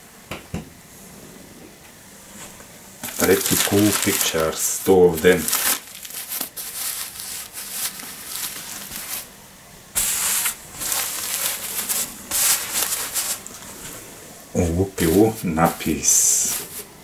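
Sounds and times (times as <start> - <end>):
nappies rustling and crinkling: 2.3 - 9.3, 10.0 - 14.1, 14.8 - 17.0.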